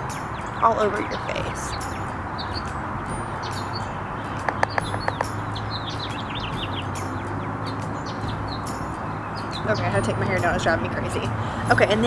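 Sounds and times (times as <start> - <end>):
background rush and hum: 0.0 - 12.0
small birds chirping: 0.0 - 12.0
louder lower bird calls: 3.4 - 9.9.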